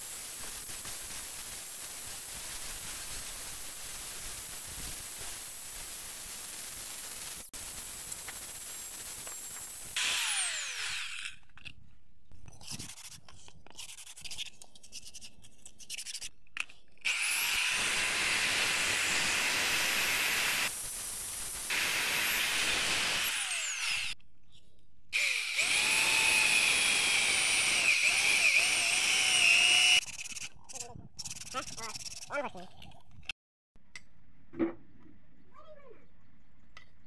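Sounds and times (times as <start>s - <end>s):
drill bit grinding wood: 8.1s - 11.4s, 17.1s - 24.2s, 25.2s - 30.6s
electric drill whine: 8.1s - 11.4s, 17.1s - 24.2s, 25.2s - 30.0s
angle grinder whine: 9.2s - 11.3s, 17.1s - 24.2s, 25.2s - 30.0s.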